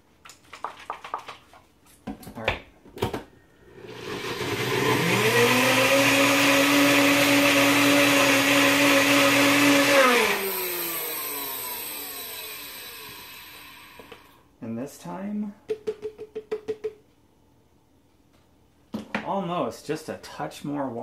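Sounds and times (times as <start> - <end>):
blender motor running: 3.8 - 14.4.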